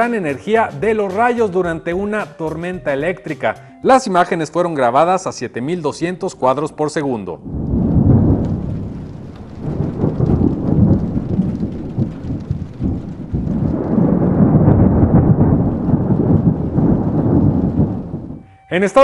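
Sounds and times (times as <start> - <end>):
rain: 7.4 - 19.0
thunder rumbling: 7.4 - 19.0.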